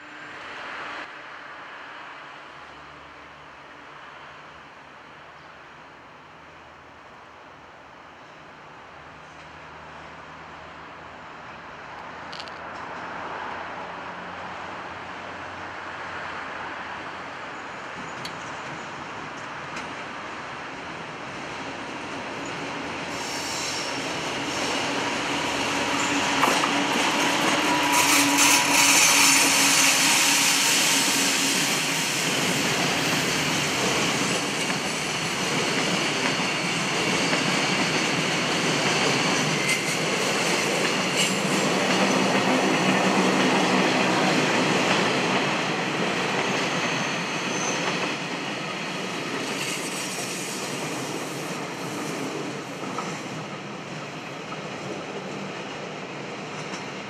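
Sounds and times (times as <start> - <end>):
train wheels rumbling on rail: 11.8 - 57.0.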